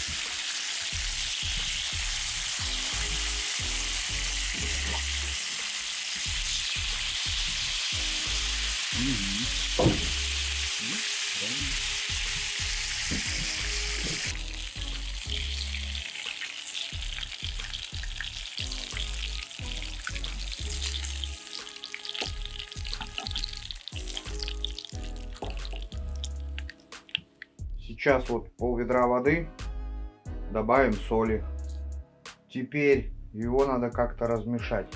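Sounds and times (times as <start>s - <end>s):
fish sizzling in oil: 0.0s - 27.5s.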